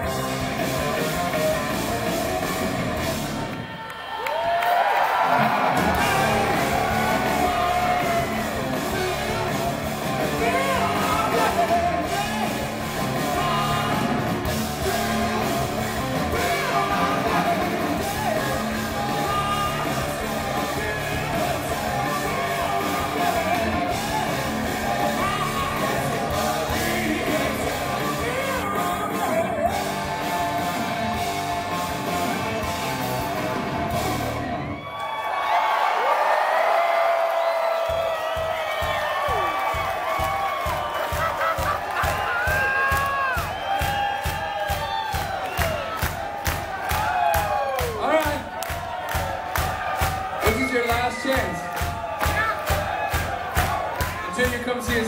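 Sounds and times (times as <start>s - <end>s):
live hard rock band: 0.0s - 3.6s, 5.3s - 34.8s
electric guitar: 0.0s - 3.8s, 5.2s - 34.9s
person singing: 5.9s - 31.1s.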